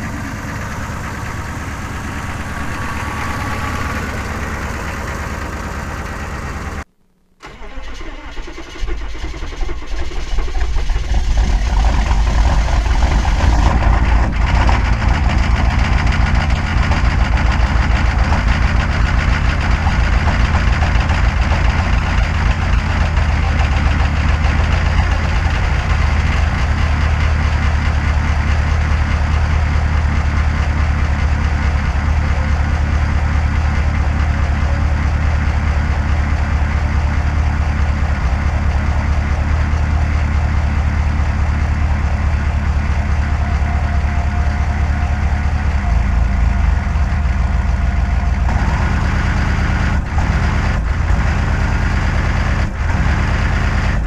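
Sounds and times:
steady noise: 0.0 - 8.5
diesel engine cranking and starting: 0.0 - 54.0
diesel engine rumbling: 0.0 - 54.0.

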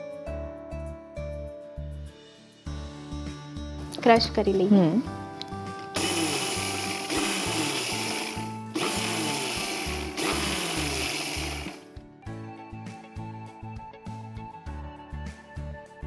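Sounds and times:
electric mixer grinder grinding seeds: 5.8 - 11.8.

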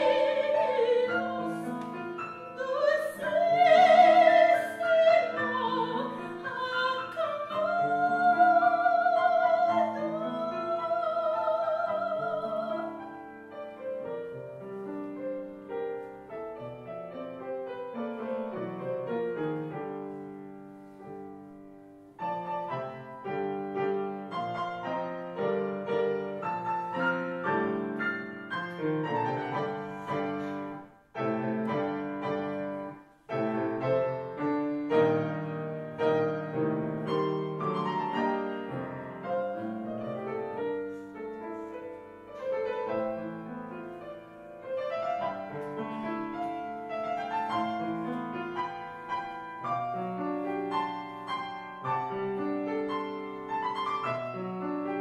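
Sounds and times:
soprano singing with vibrato: 0.0 - 13.2
grand piano: 0.0 - 55.0.

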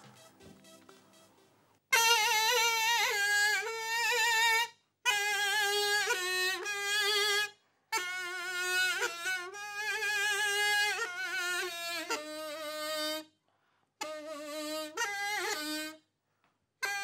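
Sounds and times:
reedy double-pipe melody: 0.0 - 3.0.

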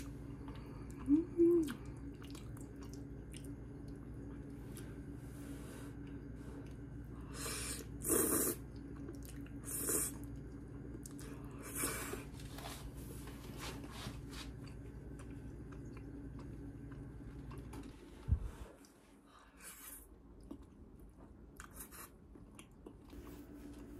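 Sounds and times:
steady low hum: 0.0 - 23.9
person slurping and chewing noodles: 6.0 - 12.3.

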